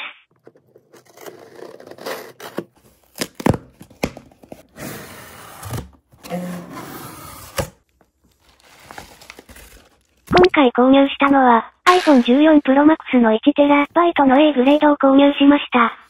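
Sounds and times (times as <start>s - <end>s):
paper rustling: 7.4s - 10.4s
packing paper crumpling: 8.1s - 10.3s.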